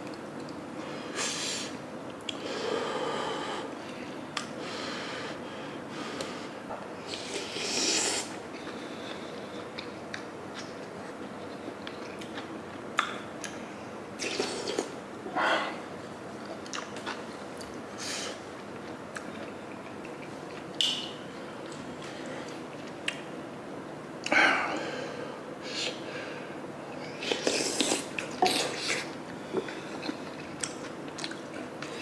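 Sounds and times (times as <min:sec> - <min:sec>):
wet chewing: 0:27.4 - 0:32.0.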